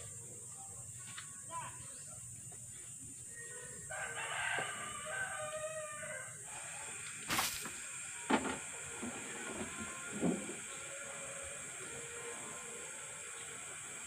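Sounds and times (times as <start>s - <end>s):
rooster crowing: 3.5s - 7.0s.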